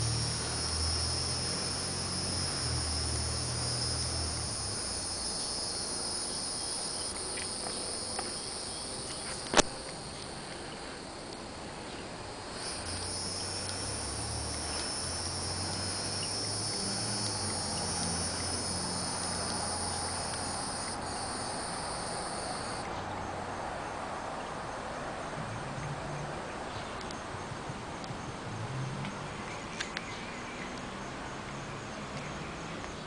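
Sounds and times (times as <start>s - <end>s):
cicada buzzing: 0.0s - 11.1s, 12.3s - 22.9s
high trill of insects: 0.0s - 22.9s.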